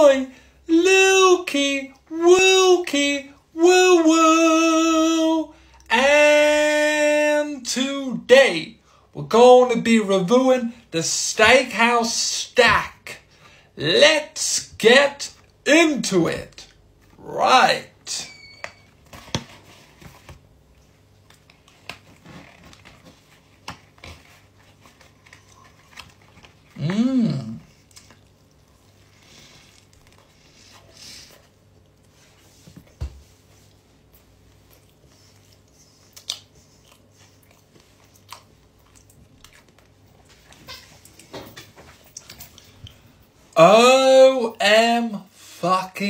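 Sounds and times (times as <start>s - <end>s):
man chewing with wet mouth smacks: 27.7s - 30.6s, 34.1s - 41.3s, 42.0s - 43.0s.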